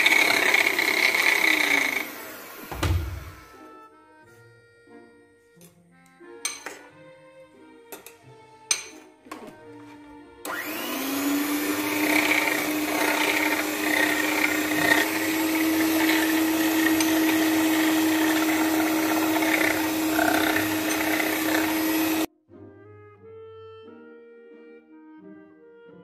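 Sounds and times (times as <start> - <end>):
electric hand mixer whining: 0.0 - 3.8, 10.4 - 22.3.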